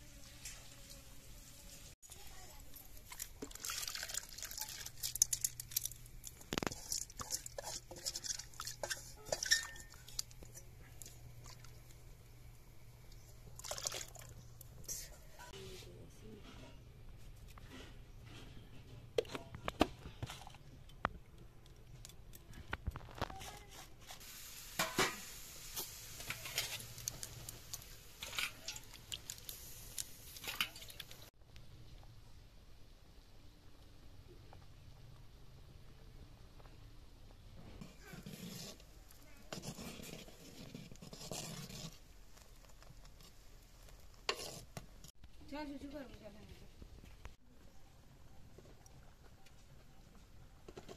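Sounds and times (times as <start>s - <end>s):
boiling liquid bubbling: 3.0s - 15.1s
metal ladle scraping pot: 6.5s - 11.6s, 26.2s - 27.2s, 37.8s - 38.9s, 39.5s - 42.0s, 44.2s - 44.8s
steady hiss of boil-over: 24.1s - 31.4s.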